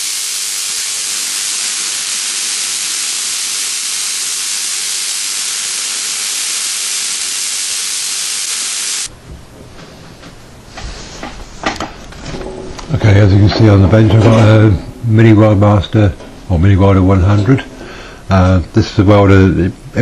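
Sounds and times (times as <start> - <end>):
electrical discharge hissing: 0.0 - 9.1.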